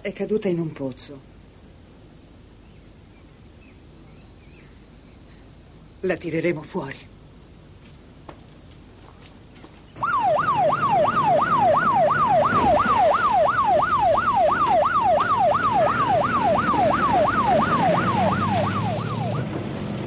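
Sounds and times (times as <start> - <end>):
car engine and tyres rumbling: 7.6 - 20.0
police siren yelping: 10.0 - 19.6.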